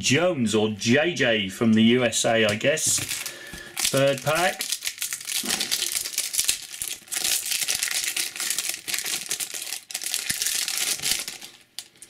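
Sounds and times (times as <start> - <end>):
foil wrapper crinkling: 2.8 - 12.0.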